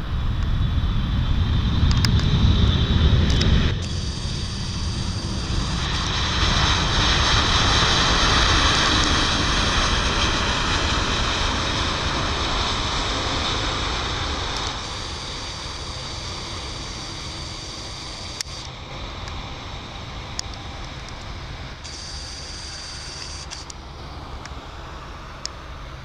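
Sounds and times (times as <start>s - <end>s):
jet engines roaring: 0.0s - 26.0s.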